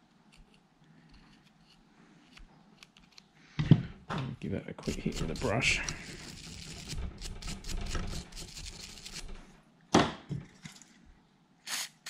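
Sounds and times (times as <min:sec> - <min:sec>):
brush scrubbing metal: 0:04.8 - 0:09.4.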